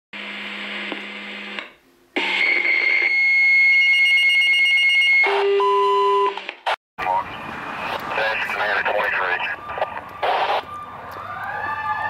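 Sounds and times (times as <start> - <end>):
radio hiss: 7.0 - 10.6
radio alert tones: 7.0 - 10.7.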